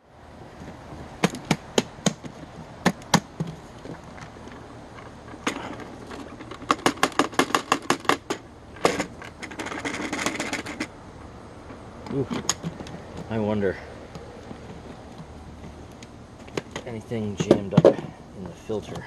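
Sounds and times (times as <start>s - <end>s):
plastic clatter: 1.2s - 10.9s, 14.1s - 19.0s
plastic clicks and knocks: 5.4s - 10.9s.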